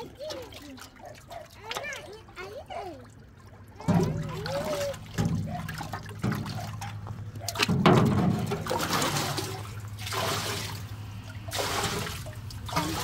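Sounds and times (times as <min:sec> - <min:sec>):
water sloshing in metal barrel: 0:00.0 - 0:13.0
water pouring off pan: 0:07.7 - 0:13.0.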